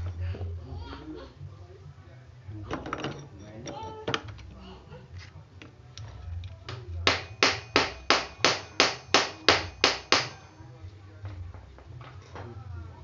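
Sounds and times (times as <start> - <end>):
metal engine parts rattling: 2.6 - 4.6
sharp metal taps: 7.1 - 10.4.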